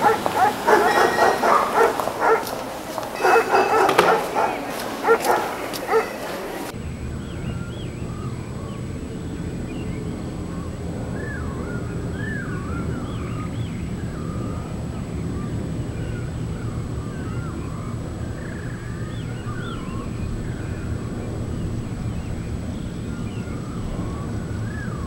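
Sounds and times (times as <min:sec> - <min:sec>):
dog barking: 0:00.0 - 0:06.7
birds chirping and warbling: 0:00.0 - 0:25.0
low rumble: 0:06.7 - 0:25.0.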